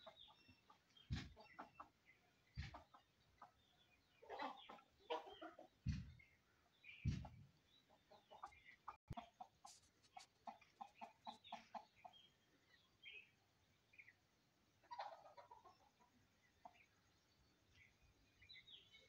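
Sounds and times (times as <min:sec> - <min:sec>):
chickens clucking: 0:00.0 - 0:19.0
dull low thumps: 0:01.1 - 0:01.4, 0:05.8 - 0:06.3, 0:06.9 - 0:07.5.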